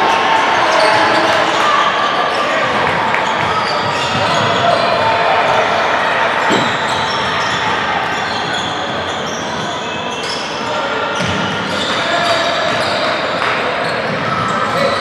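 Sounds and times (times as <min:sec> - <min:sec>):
basketball bouncing: 0:06.5 - 0:06.8
players calling out: 0:06.5 - 0:06.8
sneakers squeaking: 0:06.5 - 0:07.1.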